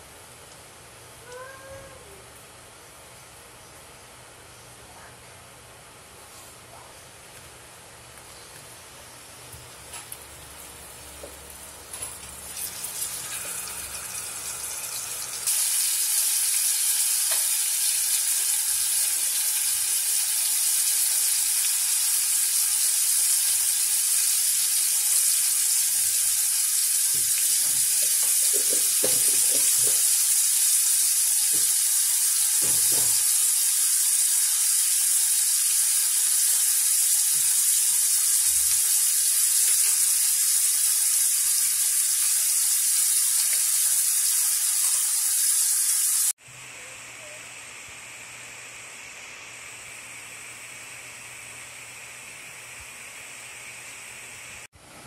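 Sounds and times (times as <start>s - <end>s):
steaks sizzling in a skillet: 9.8s - 46.4s.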